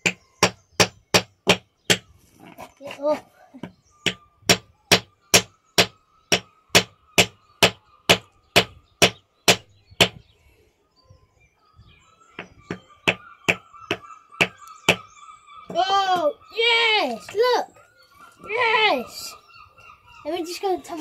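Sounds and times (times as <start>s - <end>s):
hammer striking rock: 0.0s - 2.1s, 4.0s - 10.2s.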